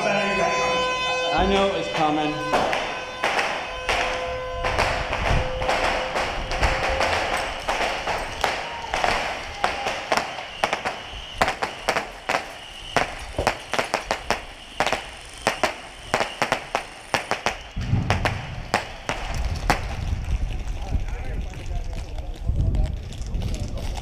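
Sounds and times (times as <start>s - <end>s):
wind buffeting microphone: 2.8s - 10.1s, 17.7s - 24.0s.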